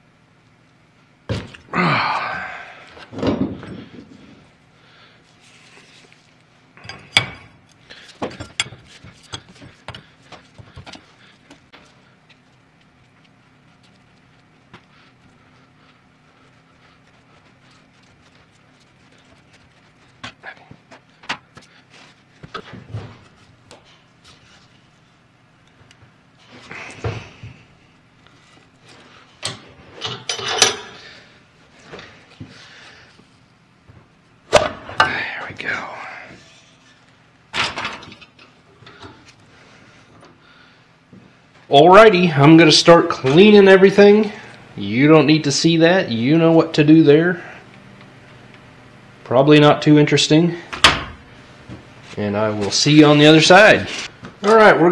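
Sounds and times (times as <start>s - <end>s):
metal tools rustling: 29.4s - 31.0s.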